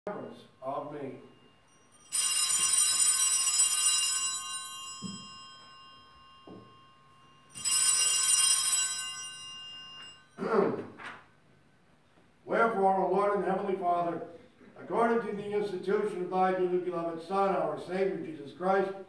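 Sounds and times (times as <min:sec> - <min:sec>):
small altar bells jangling: 0:00.4 - 0:10.4.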